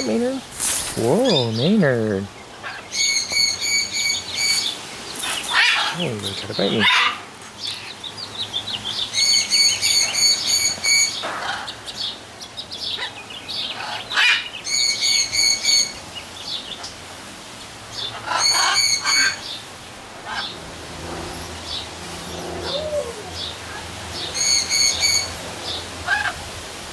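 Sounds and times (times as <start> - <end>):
parrot calls and squawks: 2.5 - 6.0, 6.7 - 7.9, 9.1 - 12.0, 13.0 - 16.0, 18.0 - 19.6, 20.2 - 20.6, 21.3 - 25.4, 26.0 - 26.4.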